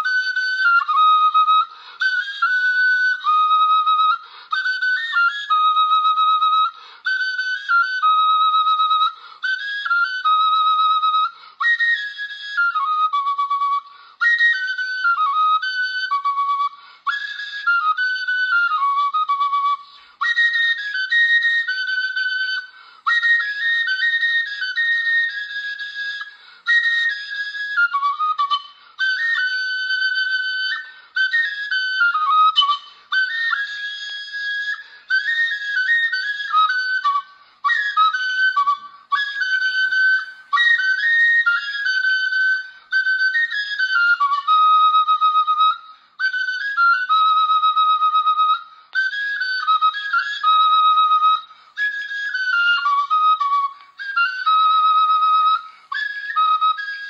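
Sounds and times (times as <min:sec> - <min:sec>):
flute-like melody: 0:00.0 - 0:57.0.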